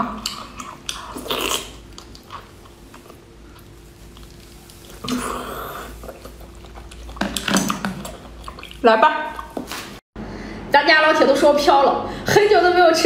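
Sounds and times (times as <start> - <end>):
person biting and chewing: 0.2 - 8.8.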